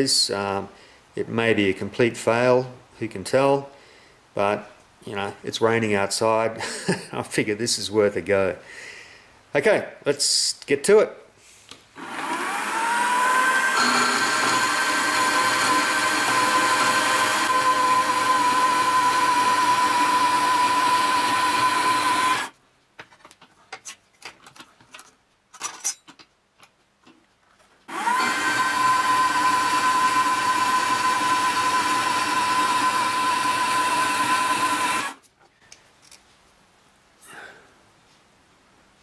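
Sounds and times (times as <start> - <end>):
bandsaw cutting metal: 12.0 - 22.5, 27.9 - 35.2.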